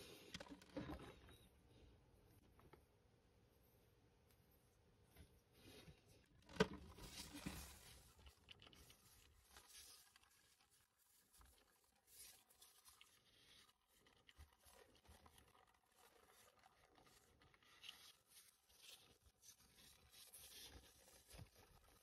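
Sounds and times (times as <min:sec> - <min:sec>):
plastic crate handling noises: 0:06.4 - 0:08.2.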